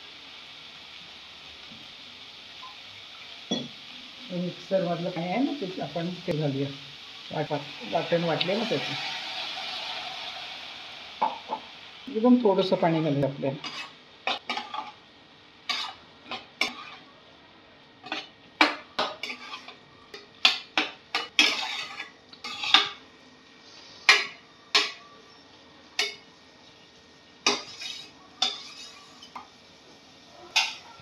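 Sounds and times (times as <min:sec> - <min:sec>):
spatula scraping a pan: 0:07.8 - 0:11.8, 0:13.6 - 0:15.0, 0:15.7 - 0:17.1, 0:18.0 - 0:23.0, 0:27.4 - 0:29.5, 0:30.4 - 0:31.0.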